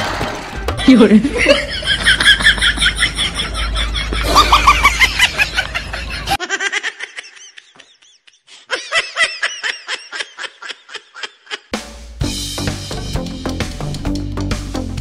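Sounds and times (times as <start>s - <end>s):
person laughing: 0.8s - 11.7s.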